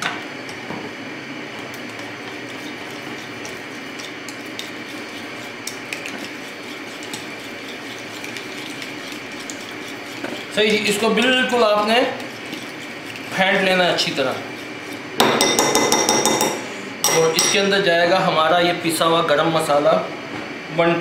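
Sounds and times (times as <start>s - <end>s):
steady background hum: 0.0s - 21.0s
spoon stirring thick mixture: 1.6s - 16.5s.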